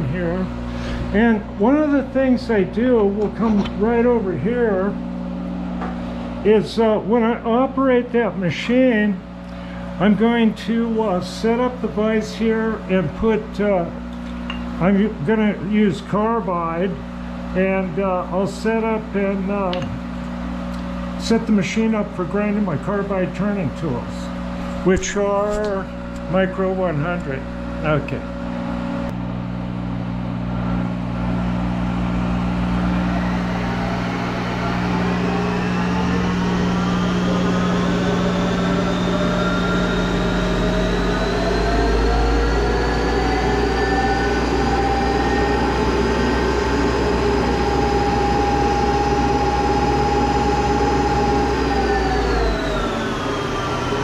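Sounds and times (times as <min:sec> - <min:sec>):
lathe spindle whine: 0:30.5 - 0:54.0.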